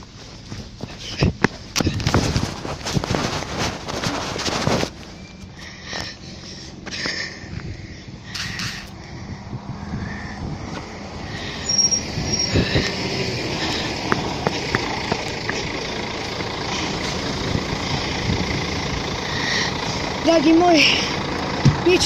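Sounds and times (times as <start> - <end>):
bus engine running: 0.0 - 22.0
short high squeaks: 11.6 - 12.9.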